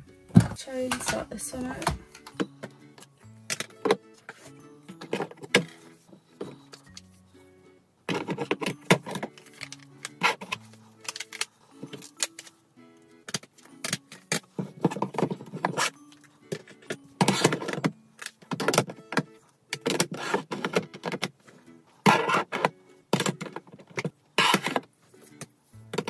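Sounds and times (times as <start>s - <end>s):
makeup palettes clacking: 0.3s - 7.1s, 8.1s - 12.5s, 13.2s - 21.4s, 22.1s - 26.0s
palettes scraping into drawer: 19.9s - 21.1s, 22.0s - 22.7s.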